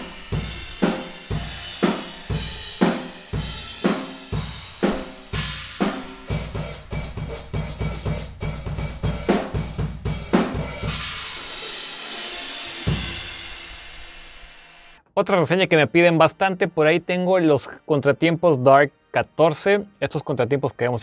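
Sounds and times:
drum kit playing: 0.0s - 15.0s
ringing cymbal wash: 10.7s - 15.0s.

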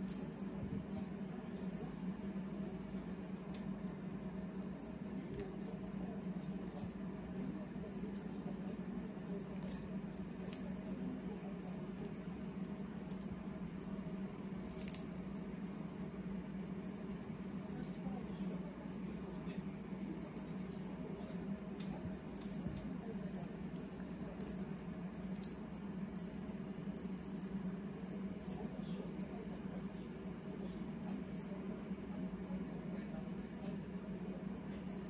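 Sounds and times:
toy rattle jingling: 0.0s - 0.4s, 1.5s - 1.8s, 3.7s - 5.4s, 6.0s - 8.3s, 9.3s - 11.0s, 11.6s - 21.4s, 22.3s - 24.6s, 25.2s - 26.4s, 27.0s - 29.6s, 31.1s - 31.5s, 34.6s - 35.0s
steady low hum: 0.0s - 35.0s.

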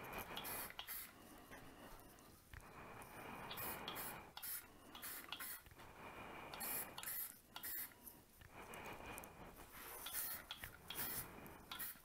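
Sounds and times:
spray paint can hissing: 0.4s - 1.1s, 3.6s - 5.6s, 6.6s - 7.9s, 10.0s - 12.0s.

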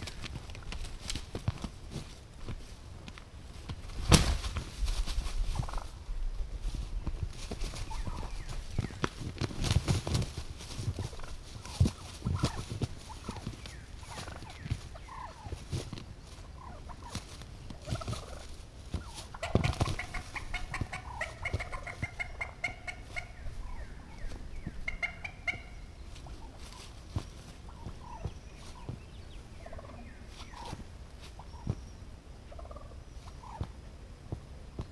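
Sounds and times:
rustling in dry leaves: 0.0s - 34.9s
thumps and wing slaps: 3.7s - 5.8s, 7.1s - 14.9s, 17.0s - 22.2s
turkey gobbling: 5.6s - 6.0s, 7.8s - 9.0s, 11.0s - 15.8s, 16.4s - 27.0s, 27.6s - 31.8s, 32.5s - 33.7s.

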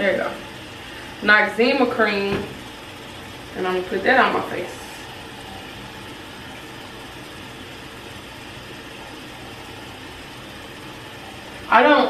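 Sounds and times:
steady hum with hiss: 0.0s - 12.0s.

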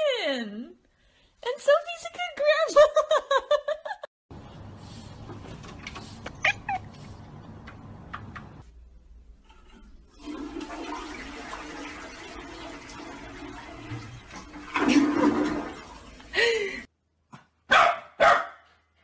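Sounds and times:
cat chirping: 6.3s - 7.2s
toilet flushing: 9.4s - 16.9s.

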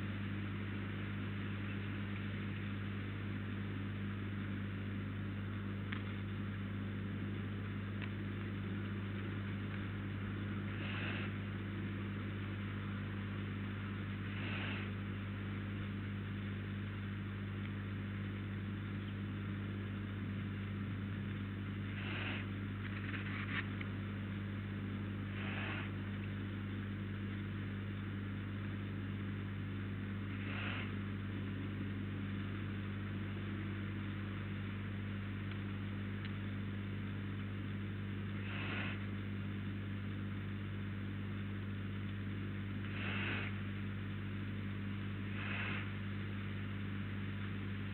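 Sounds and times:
steady electrical hum: 0.0s - 47.9s
short hisses: 10.7s - 11.4s, 14.3s - 14.9s, 22.0s - 22.5s, 25.4s - 26.0s, 30.4s - 31.0s, 38.4s - 39.0s, 42.9s - 43.6s, 45.4s - 46.0s.

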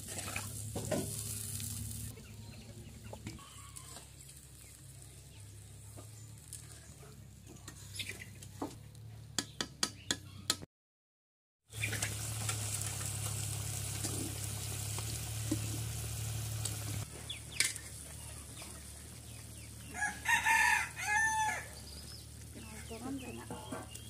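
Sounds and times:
curry bubbling and sizzling: 0.0s - 2.1s, 11.7s - 19.8s
rooster crowing: 19.9s - 21.8s.

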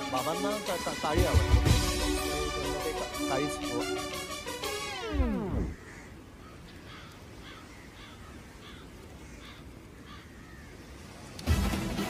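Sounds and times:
music with tape-stop effect: 4.6s - 5.7s.

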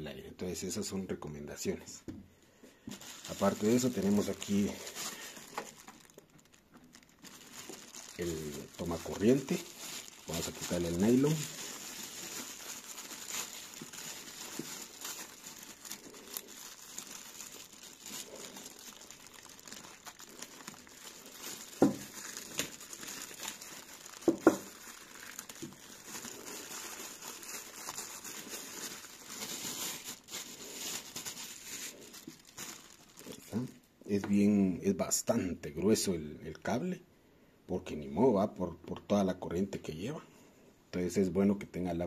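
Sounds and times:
plastic wrapping crinkling: 2.7s - 34.4s.

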